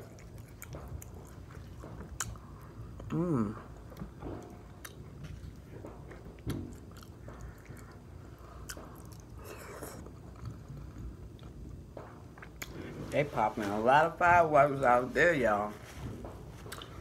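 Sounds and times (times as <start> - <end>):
person chewing food: 0.0 - 13.0, 16.5 - 17.0.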